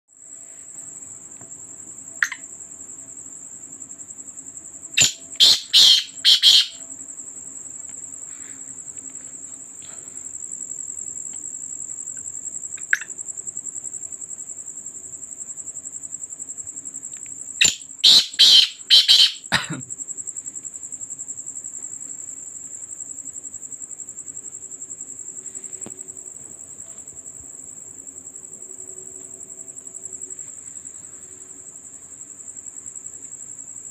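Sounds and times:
cricket chirping: 0.1 - 33.9
bird harsh grating calls: 5.0 - 6.8, 17.6 - 19.6.

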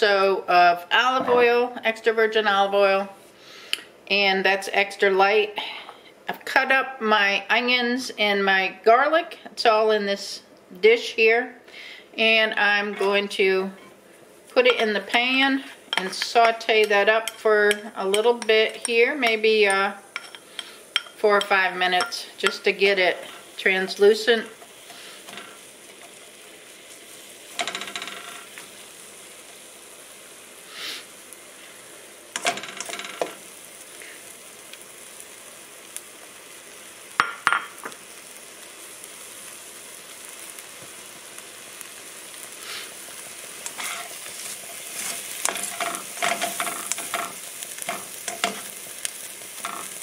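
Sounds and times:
onion and garlic sizzling in oil: 0.0 - 50.0
spatula scraping and tapping pan: 12.9 - 13.2, 14.6 - 26.2, 32.4 - 33.4, 43.6 - 48.8, 49.6 - 50.0.

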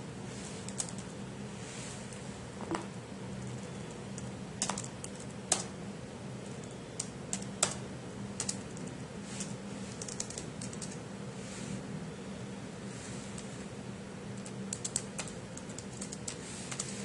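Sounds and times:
low steady hum: 0.0 - 17.0
computer keyboard typing: 0.7 - 1.1, 3.4 - 5.7, 6.6 - 7.8, 8.4 - 11.0, 14.3 - 17.0.

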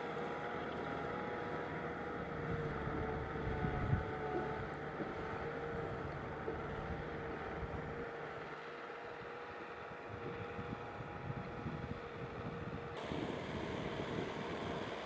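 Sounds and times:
second tractor working in mud: 0.0 - 15.0.

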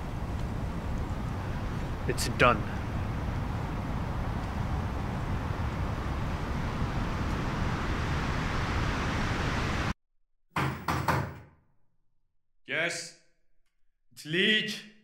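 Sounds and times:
outdoor background rumble: 0.0 - 9.9
knocking on door: 10.5 - 11.5.

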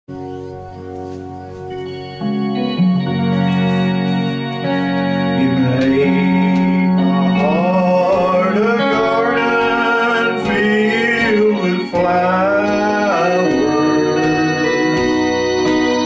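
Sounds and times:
organ chords: 0.1 - 16.0
man singing: 5.1 - 16.0.

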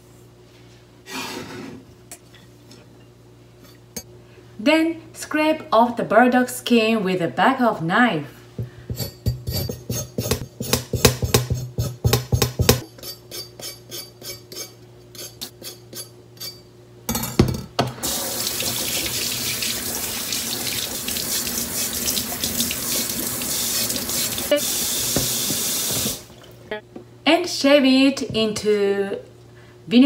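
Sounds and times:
tap running into metal sink: 25.1 - 26.2.

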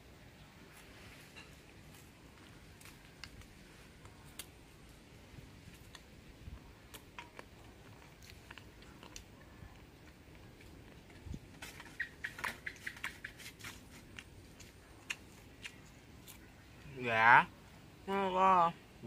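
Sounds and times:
person chewing crunchy food: 6.8 - 11.2, 12.8 - 16.5.

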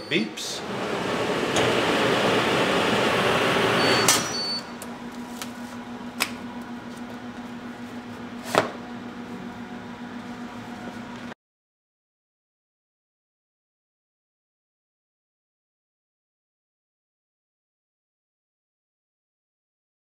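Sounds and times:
low fan hum: 0.0 - 11.4
hot-air blower rushing: 0.3 - 11.3
short beep: 3.8 - 4.7.

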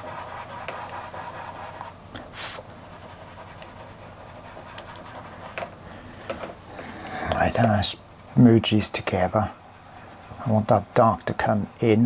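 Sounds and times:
fingertips rubbing pastel on paper: 0.0 - 5.6, 9.0 - 11.6.

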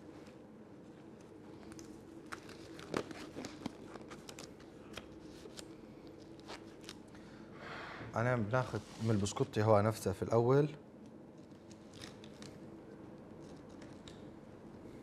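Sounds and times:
disposable gloves crinkling: 1.0 - 7.2, 11.1 - 14.4.

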